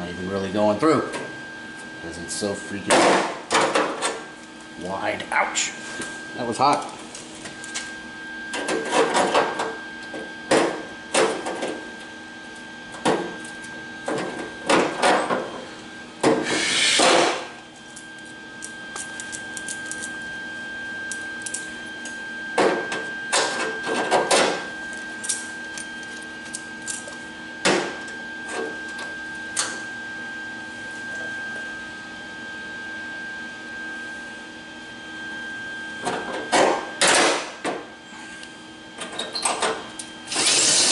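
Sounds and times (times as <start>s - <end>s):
crackling welding bursts: 40.3s - 40.9s.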